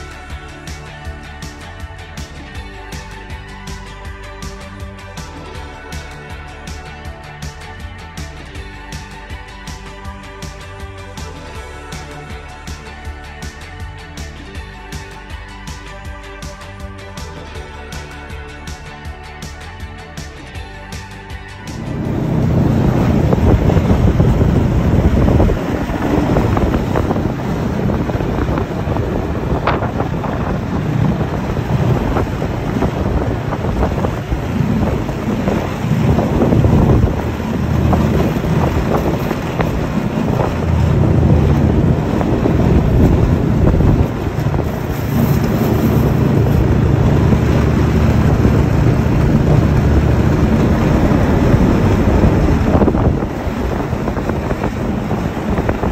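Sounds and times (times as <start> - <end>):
snowmobile engine running: 21.7 - 55.9
wind buffeting microphone: 21.8 - 55.9.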